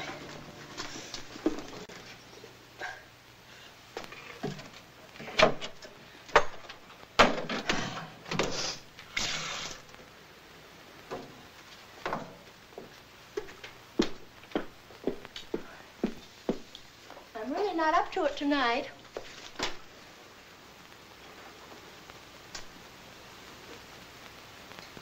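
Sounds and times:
short hissing rushes: 0:08.5 - 0:09.9.

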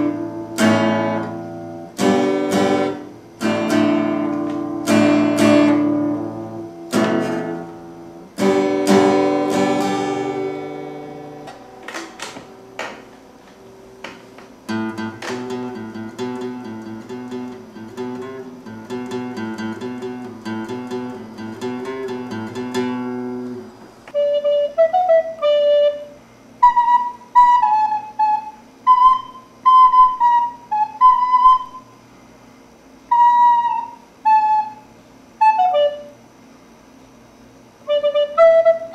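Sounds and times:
acoustic guitar: 0:00.0 - 0:24.0
recorder playing a melody: 0:08.4 - 0:13.0, 0:24.1 - 0:31.9, 0:33.1 - 0:36.2, 0:37.9 - 0:38.9.

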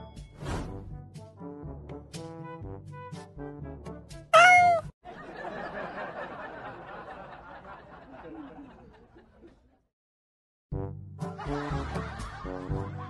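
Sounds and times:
playful background music: 0:00.0 - 0:04.9, 0:10.8 - 0:13.0
cat meowing: 0:04.4 - 0:04.9.

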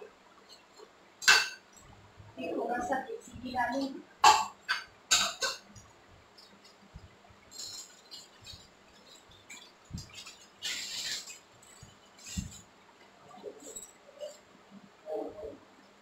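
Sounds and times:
spoon stirring in pan: 0:03.8 - 0:12.7.

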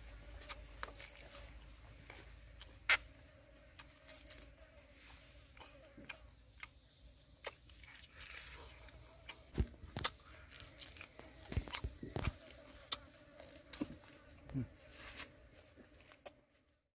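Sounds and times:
person chewing crunchy food: 0:00.2 - 0:03.1, 0:03.7 - 0:04.5, 0:05.4 - 0:15.2.

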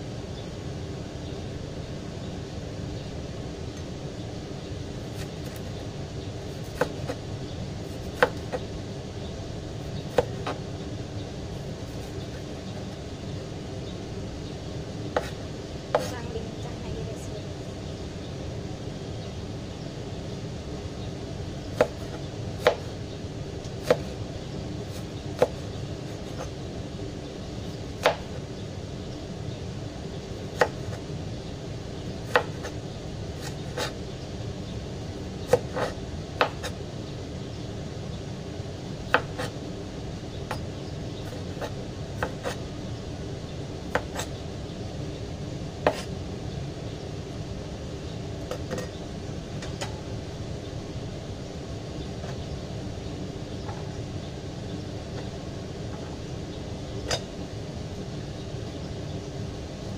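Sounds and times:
low background hum: 0:00.0 - 0:59.9
cleaver chopping on cutting board: 0:15.2 - 0:16.1.

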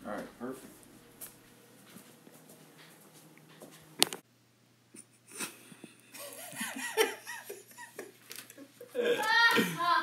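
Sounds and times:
man laughing: 0:05.3 - 0:10.0.

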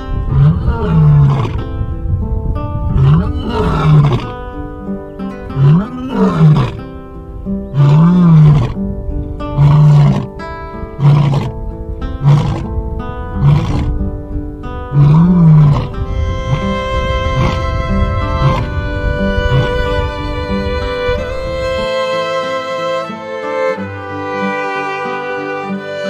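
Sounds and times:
lion roaring: 0:00.2 - 0:01.7, 0:02.9 - 0:04.4, 0:05.5 - 0:06.9, 0:07.7 - 0:08.8, 0:09.5 - 0:11.6, 0:12.2 - 0:12.7, 0:13.3 - 0:14.1, 0:14.9 - 0:19.9
background music with held notes: 0:01.7 - 0:26.0.

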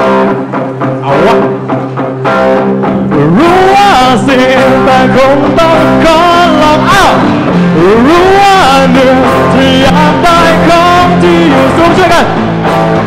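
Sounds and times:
drums: 0:00.0 - 0:13.0
electric guitar chords: 0:00.0 - 0:13.0
man singing into microphone: 0:03.1 - 0:12.3.

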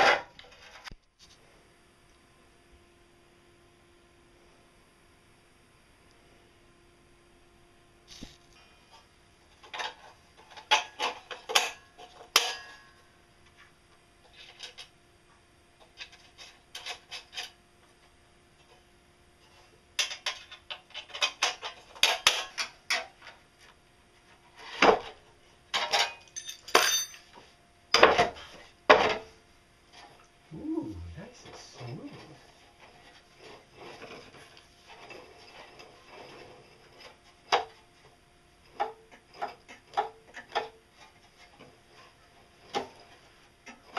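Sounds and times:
steel parts clanking on metal frame: 0:25.7 - 0:27.3.

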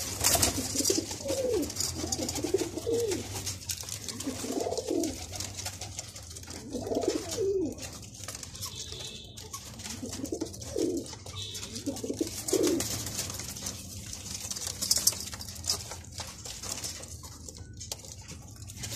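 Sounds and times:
pigeons cooing: 0:00.0 - 0:08.2, 0:09.6 - 0:13.5.

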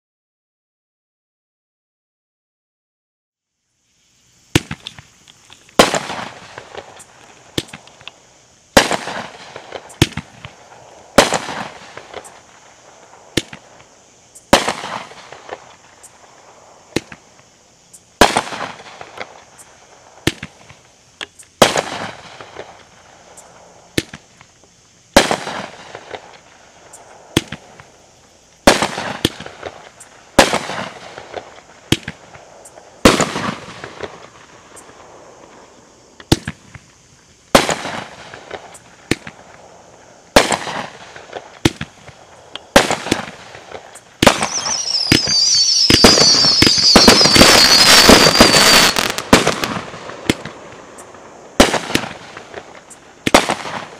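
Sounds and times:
firework shells banging: 0:41.4 - 0:53.9.

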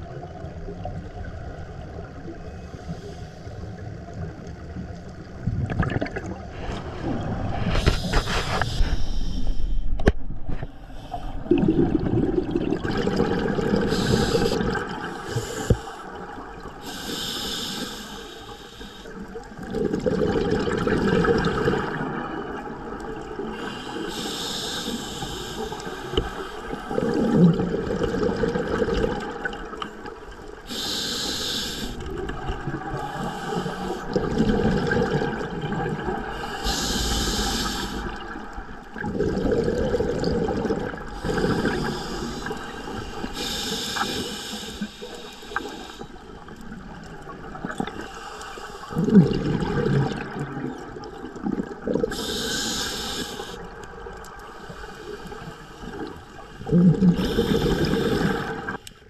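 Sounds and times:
exhalation bubbling rumble: 0:05.3 - 0:09.0, 0:11.3 - 0:15.1, 0:19.5 - 0:23.2, 0:26.8 - 0:29.8, 0:34.0 - 0:42.8, 0:48.9 - 0:52.4, 0:56.6 - 0:58.8
regulator inhalation hiss: 0:07.9 - 0:09.7, 0:13.9 - 0:16.1, 0:16.8 - 0:19.2, 0:23.6 - 0:26.8, 0:30.7 - 0:32.0, 0:36.4 - 0:38.3, 0:41.2 - 0:46.3, 0:48.0 - 0:49.0, 0:52.1 - 0:53.7, 0:57.2 - 0:58.8.

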